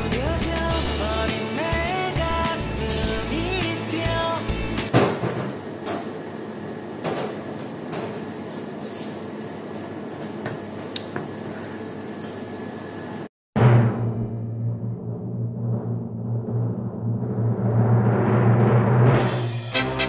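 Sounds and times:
loud outro music: 0.0s - 4.9s, 13.6s - 20.0s
kitchen room noise: 2.7s - 13.3s
low drum hit: 13.6s - 19.7s.

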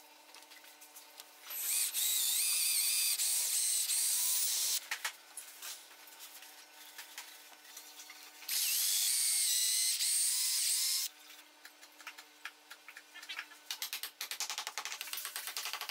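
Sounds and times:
drill boring through wood: 1.5s - 4.8s, 8.5s - 11.1s.

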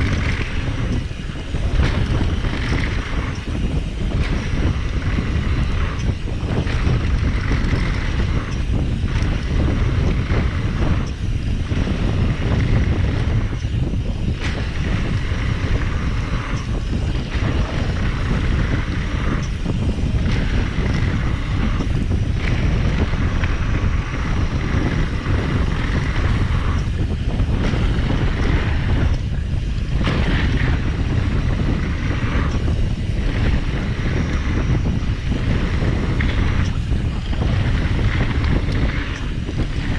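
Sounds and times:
tyres rolling on dirt: 0.0s - 39.9s
wind rushing over microphone: 0.0s - 39.9s.

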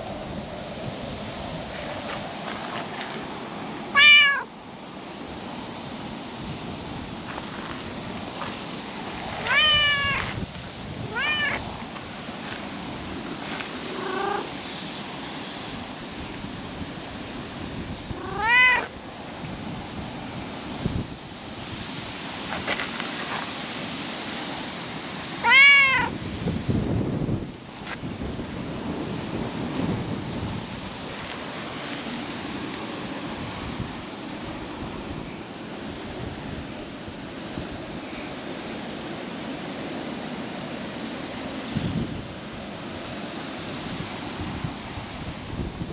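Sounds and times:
low rumbling wind gusts: 0.0s - 45.9s
wind on microphone: 0.0s - 45.9s
cat meowing: 4.0s - 4.5s, 9.4s - 10.3s, 11.1s - 11.6s, 14.0s - 14.5s, 18.2s - 18.9s, 25.4s - 26.1s.

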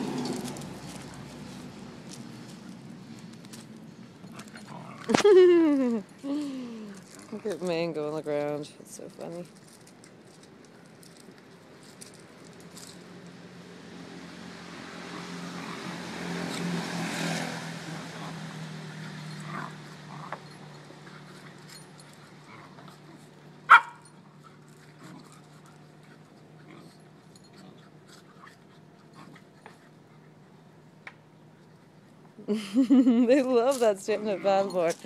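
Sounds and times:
dog yelping: 23.7s - 24.1s.

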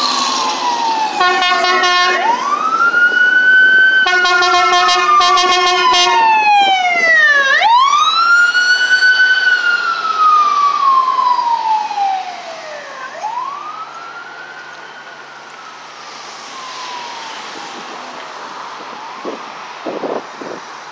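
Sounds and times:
ambulance siren wailing: 0.0s - 20.7s
ambulance horn blasts: 1.2s - 2.5s, 4.0s - 6.4s.

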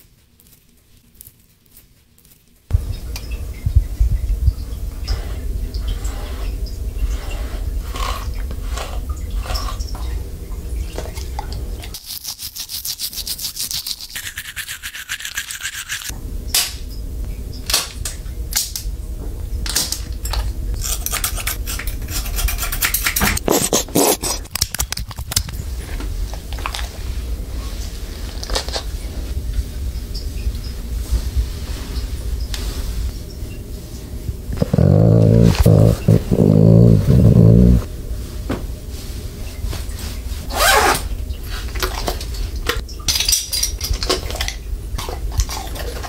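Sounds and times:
brush scrubbing through fur: 12.0s - 16.1s, 23.3s - 24.5s, 34.6s - 37.9s
hands rubbing fur: 34.6s - 37.9s.

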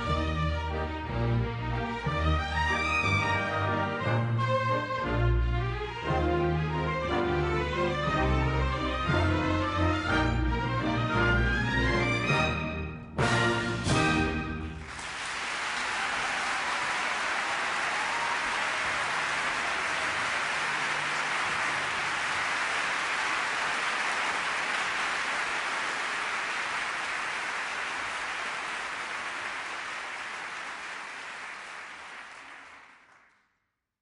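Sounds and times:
audience applauding: 14.6s - 33.6s.

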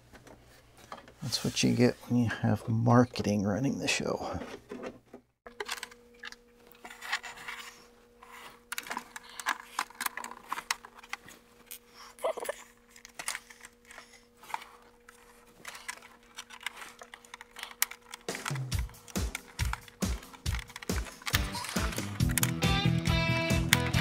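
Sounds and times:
plastic parts clicking and rattling: 4.4s - 7.8s, 8.7s - 24.0s.

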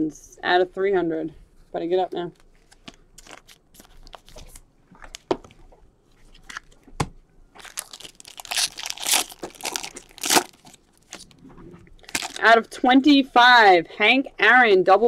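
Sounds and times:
wrapper crinkling and tearing: 2.4s - 5.3s, 7.6s - 11.3s, 12.0s - 12.5s.

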